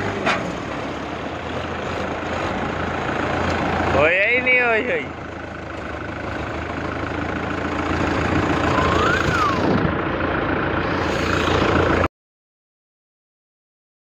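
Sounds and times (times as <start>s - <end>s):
tractor diesel engine humming: 0.0s - 12.1s
rising and falling tone: 8.6s - 9.9s.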